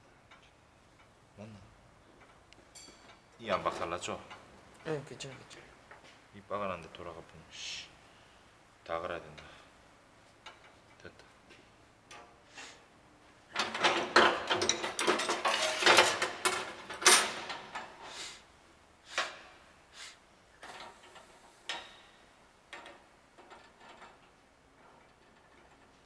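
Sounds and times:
metal tools clinking: 0:02.7 - 0:05.6, 0:13.6 - 0:17.9.

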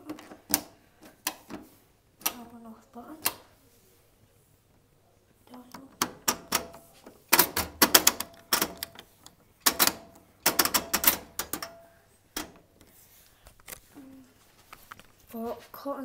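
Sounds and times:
washing machine dial clicking: 0:00.0 - 0:02.6, 0:03.2 - 0:03.4, 0:05.5 - 0:12.8.

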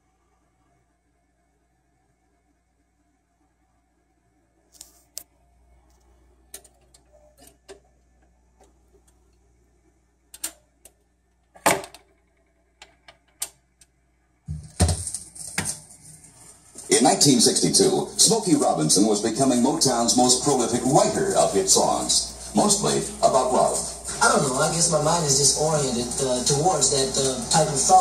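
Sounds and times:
record groove hiss: 0:00.0 - 0:28.0
record changer clicks and clunks: 0:06.5 - 0:09.4, 0:10.3 - 0:14.0.

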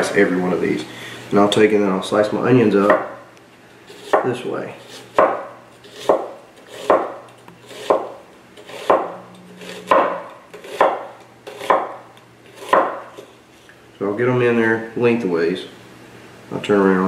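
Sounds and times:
knife slicing onion: 0:03.9 - 0:13.4.

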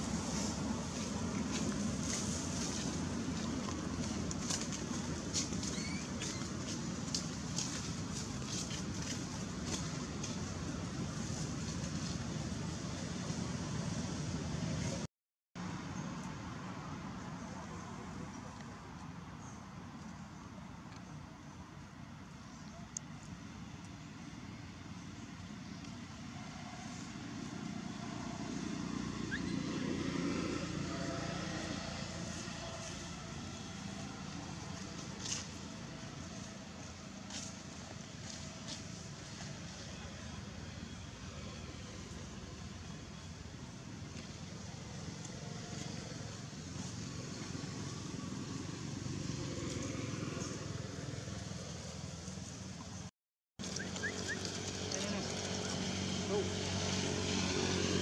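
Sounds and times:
low outdoor rumble: 0:00.0 - 0:15.1
vehicle engine rumble passing: 0:00.0 - 0:21.2, 0:22.4 - 0:58.0.

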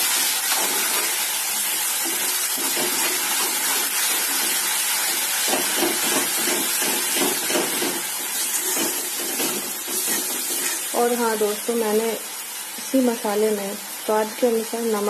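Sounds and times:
masala sizzling in hot oil: 0:00.0 - 0:15.0
steel spoon scraping pan: 0:08.4 - 0:10.9.

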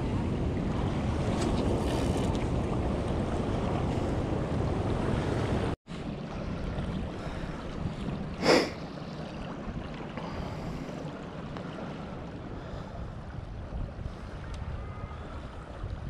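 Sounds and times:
wind noise on microphone: 0:00.0 - 0:11.0, 0:12.4 - 0:16.0
river current rushing: 0:07.0 - 0:09.3.

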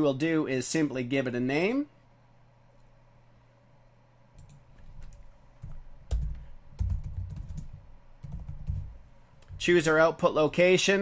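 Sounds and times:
typing on computer keyboard: 0:04.4 - 0:09.0.

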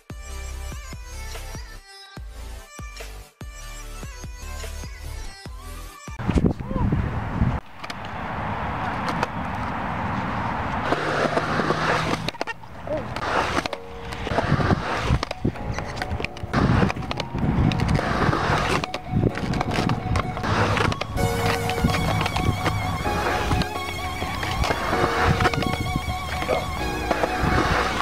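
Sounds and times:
skateboard rolling on concrete: 0:07.2 - 0:28.0
skateboard knocks and clacks: 0:10.8 - 0:22.8.

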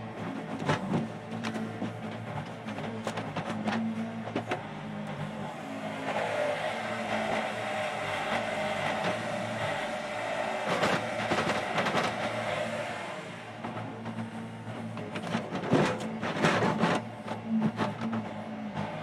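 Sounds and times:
excavator diesel engine under load: 0:00.0 - 0:19.0
knocks and clatter: 0:00.2 - 0:05.3, 0:13.6 - 0:18.9.

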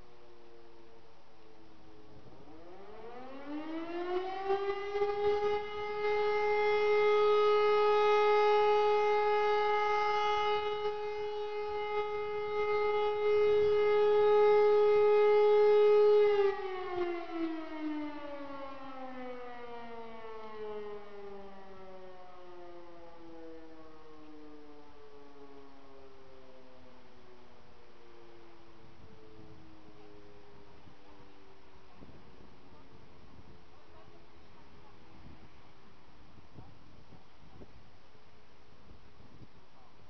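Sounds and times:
second siren winding down: 0:00.0 - 0:33.5
electric motor siren: 0:02.2 - 0:31.5.

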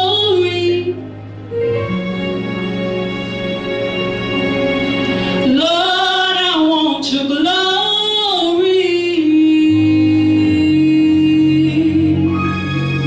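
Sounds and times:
woman singing: 0:00.0 - 0:01.0, 0:05.4 - 0:13.0
instrumental chords: 0:00.0 - 0:13.0.

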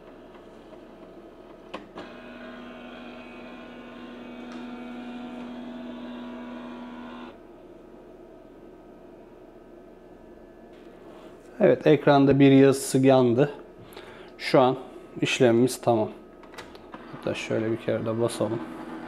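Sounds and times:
printer mechanism whining: 0:00.0 - 0:07.4, 0:16.4 - 0:19.0.

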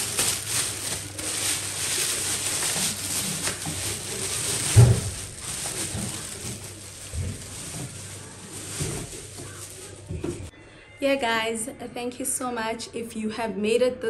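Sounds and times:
plastic bag rustling: 0:00.0 - 0:10.5.

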